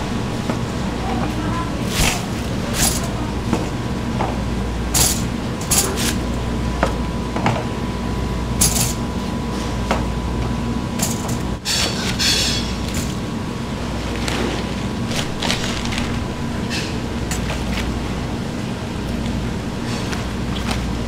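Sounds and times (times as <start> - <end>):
steady low hum: 0.0 - 21.0
clinks against dishes and pans: 11.0 - 13.2.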